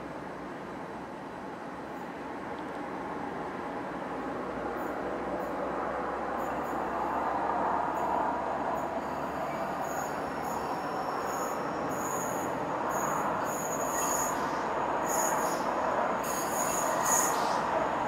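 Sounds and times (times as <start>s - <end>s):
freight train rumble: 0.0s - 18.0s
train wheels squealing: 6.4s - 7.2s, 7.9s - 17.8s.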